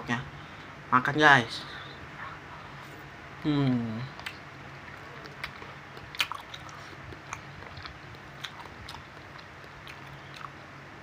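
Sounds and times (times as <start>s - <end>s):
close-up chewing: 4.1s - 10.8s.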